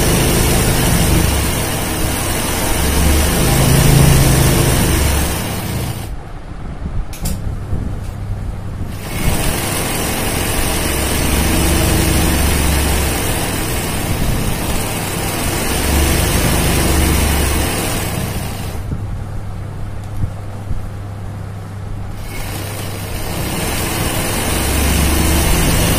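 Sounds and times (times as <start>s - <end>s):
sewing machine stitching: 0.0s - 6.1s, 8.9s - 18.9s, 22.2s - 25.9s.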